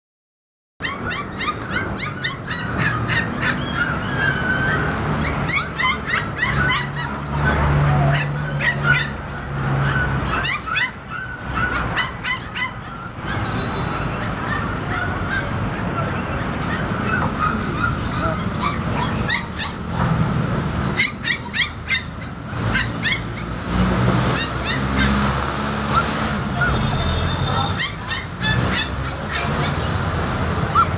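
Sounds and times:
puppies yelping and whining: 0.8 - 30.9.

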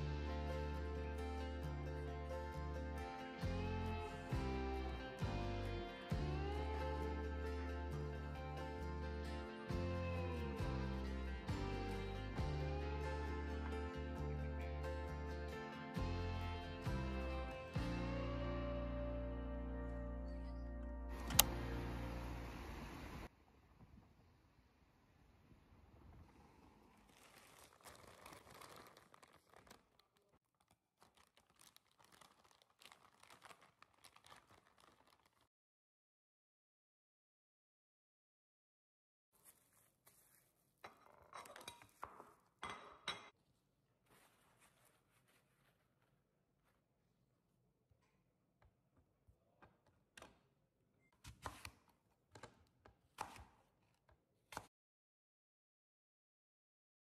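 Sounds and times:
plastic bag crinkling: 26.8 - 35.5.

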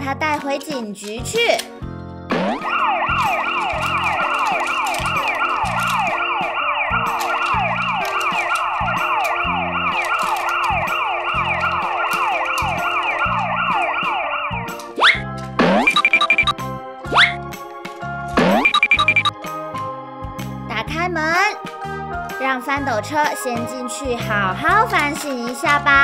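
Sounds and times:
toy electronic siren yelping: 2.5 - 15.2, 15.8 - 17.4, 18.6 - 19.3.

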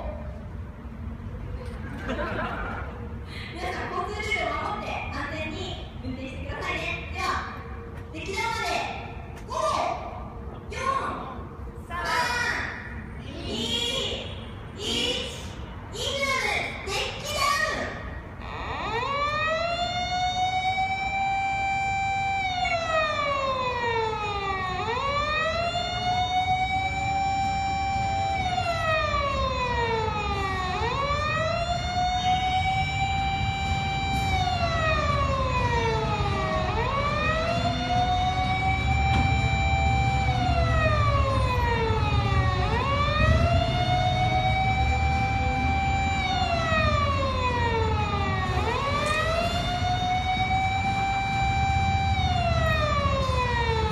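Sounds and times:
electronic siren wailing: 18.4 - 53.9.

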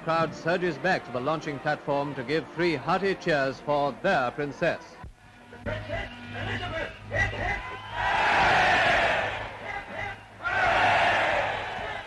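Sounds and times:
crowd cheering hooray: 7.4 - 12.0.

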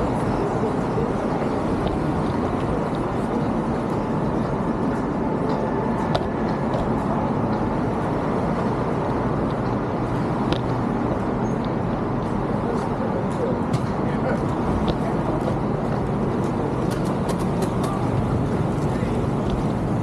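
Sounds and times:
street traffic noise: 0.0 - 20.0.

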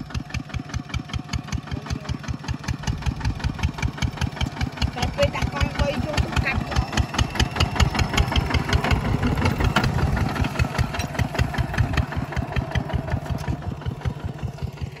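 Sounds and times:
diesel tractor engine running: 0.0 - 15.0.

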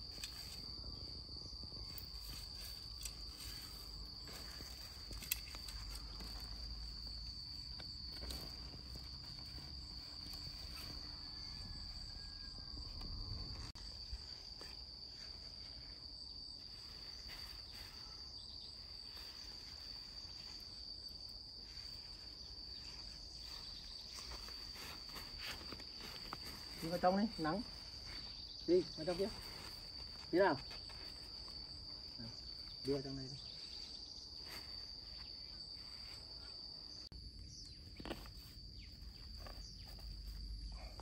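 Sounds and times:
insects singing in grass: 0.0 - 41.0.

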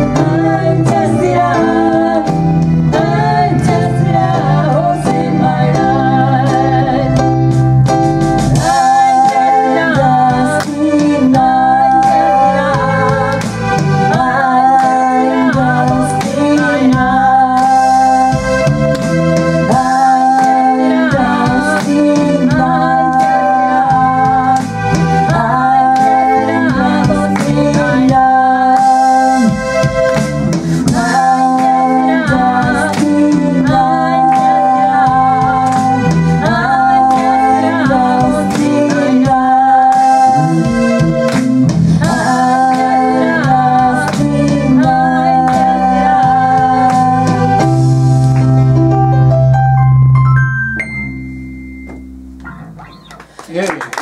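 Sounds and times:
woman singing: 0.0 - 7.2, 8.6 - 18.4, 19.7 - 29.6, 30.8 - 41.4, 42.0 - 47.6
electric bass: 0.0 - 53.6
synthesizer keyboards: 44.7 - 53.4.

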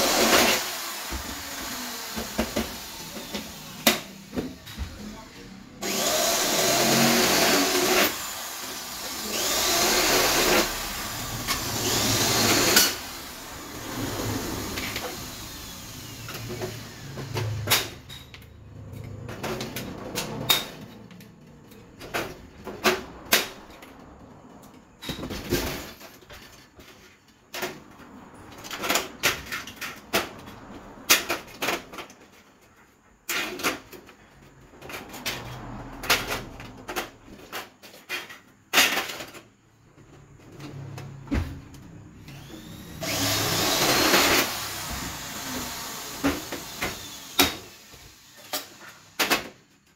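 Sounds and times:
power drill bursts: 0.0 - 3.7, 5.8 - 17.3, 42.2 - 49.5.

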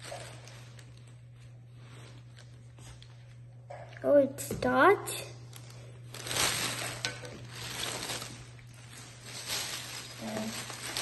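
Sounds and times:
packaging rustling and crinkling: 0.0 - 3.1, 5.5 - 11.0
steady low hum: 0.0 - 11.0.

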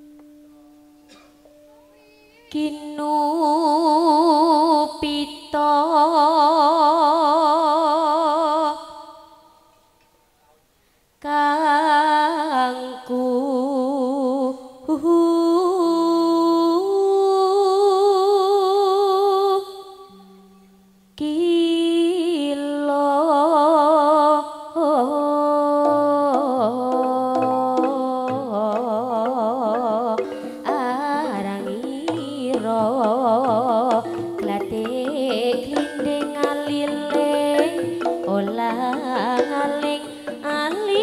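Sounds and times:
woman singing with vibrato: 2.5 - 9.6, 11.2 - 20.6, 21.2 - 41.0
low instrument tones: 25.4 - 41.0
short struck notes: 25.8 - 41.0.

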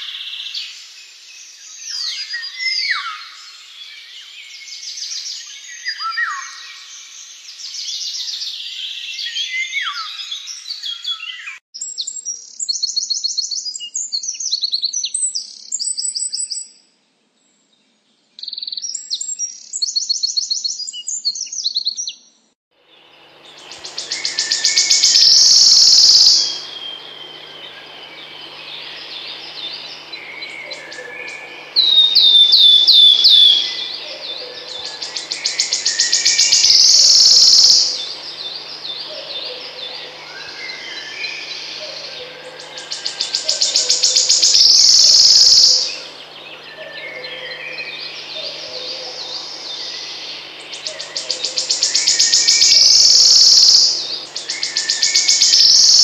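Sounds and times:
faint hum: 22.8 - 56.0
wren trilling song: 22.8 - 56.0
other birds: 22.9 - 56.0
warbler shivering trill: 23.0 - 56.0
descending piping notes: 23.3 - 55.8.

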